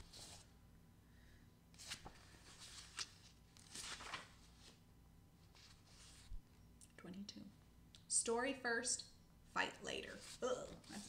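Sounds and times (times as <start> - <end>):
book pages rustling: 0.0 - 0.5, 1.8 - 4.8, 5.4 - 6.4, 10.0 - 11.0.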